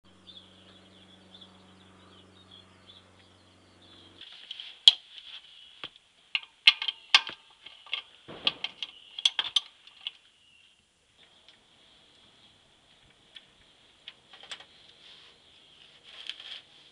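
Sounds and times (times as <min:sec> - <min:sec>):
low hum: 0:00.1 - 0:04.2.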